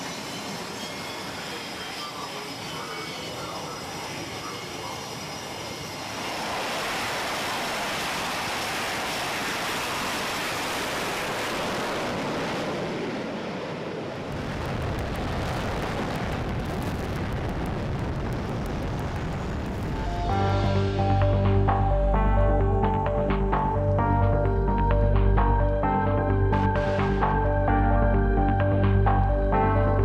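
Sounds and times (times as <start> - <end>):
jet engines roaring: 0.0 - 23.2.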